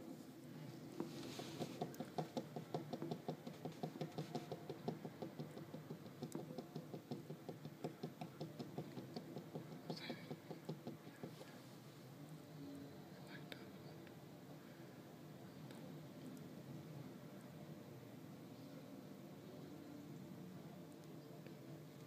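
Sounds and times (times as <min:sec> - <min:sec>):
rapid demolition knocking: 0:01.6 - 0:11.3.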